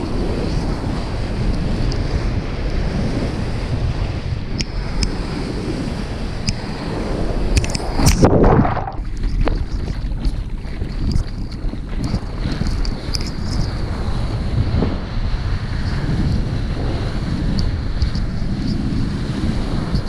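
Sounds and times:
wind buffeting microphone: 0:00.0 - 0:20.0
whitewater rushing: 0:07.6 - 0:09.1
loud water splash: 0:07.9 - 0:09.2.

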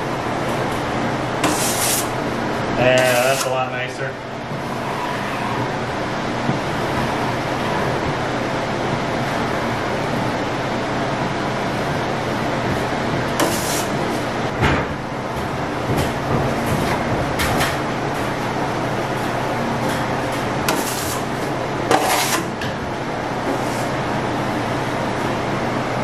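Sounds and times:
trowel scraping plaster wall: 0:01.4 - 0:02.2, 0:02.8 - 0:03.6, 0:13.4 - 0:13.9, 0:20.7 - 0:21.3, 0:21.9 - 0:22.5.

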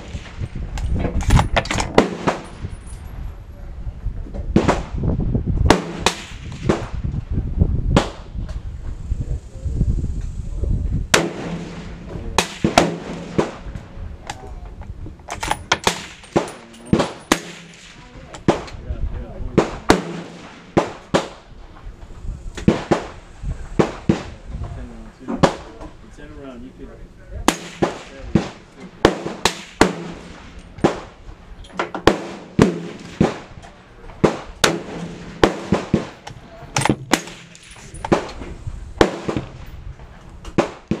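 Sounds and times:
gunshots: 0:00.0 - 0:00.6, 0:01.2 - 0:02.7, 0:04.5 - 0:05.0, 0:05.7 - 0:07.0, 0:11.1 - 0:13.9, 0:15.4 - 0:18.8, 0:19.5 - 0:21.5, 0:22.6 - 0:23.2, 0:23.8 - 0:24.4, 0:27.4 - 0:31.2, 0:32.0 - 0:33.6, 0:34.2 - 0:38.4, 0:39.0 - 0:39.7, 0:40.5 - 0:41.0.

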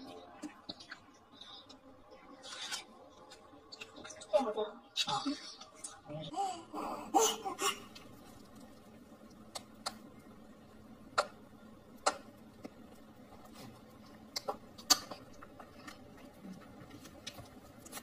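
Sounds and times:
child chewing corn on the cob: 0:00.0 - 0:04.2, 0:11.1 - 0:18.0.

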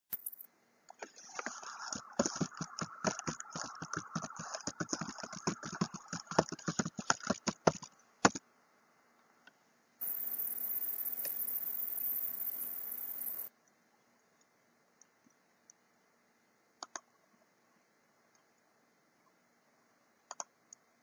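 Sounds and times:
computer keyboard typing: 0:00.1 - 0:00.5, 0:10.0 - 0:13.5
faint steady hum: 0:00.1 - 0:21.0.

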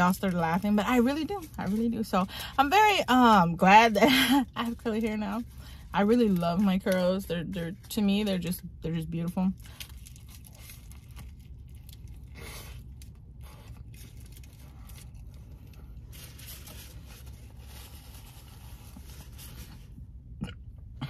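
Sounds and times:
food packaging rustling: 0:09.6 - 0:19.9.

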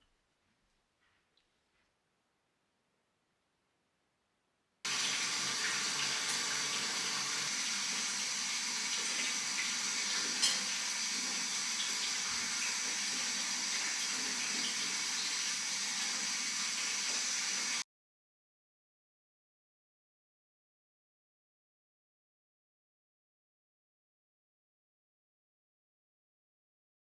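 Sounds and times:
tap water running into bathtub: 0:04.9 - 0:17.8.

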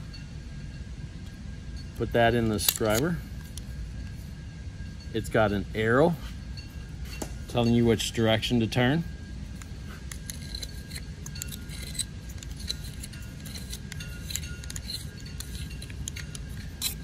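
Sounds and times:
low steady hum: 0:00.0 - 0:17.0
small metallic clicks and scrapes: 0:02.3 - 0:04.2, 0:09.5 - 0:17.0.

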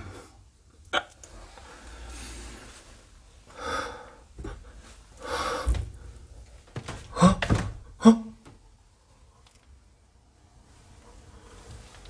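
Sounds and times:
breathy exhalations: 0:01.3 - 0:06.4.

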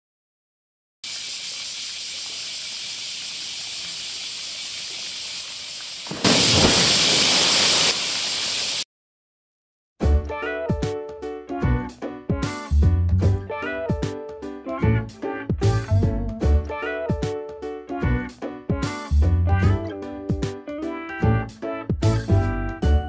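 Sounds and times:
loud splash of water: 0:03.7 - 0:08.8.

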